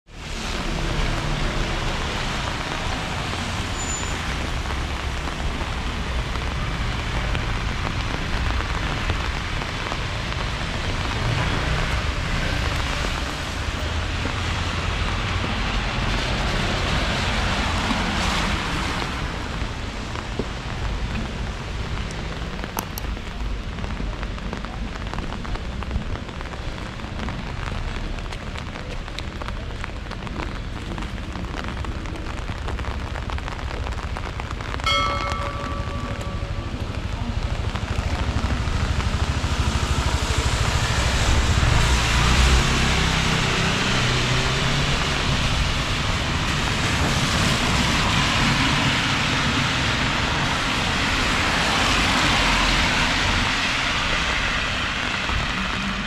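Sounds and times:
steady rain falling: 0.1s - 56.0s
low rumble: 34.8s - 42.0s.

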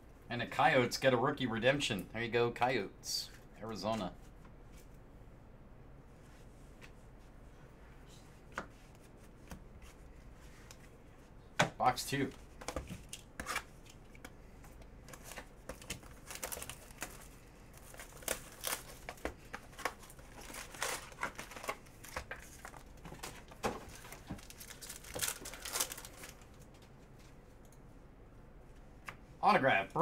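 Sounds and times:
foil wrappers crinkling and tearing: 15.1s - 26.7s.

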